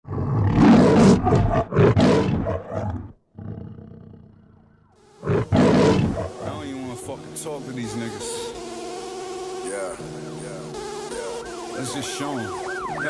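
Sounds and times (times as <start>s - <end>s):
lion roaring: 0.0s - 6.5s.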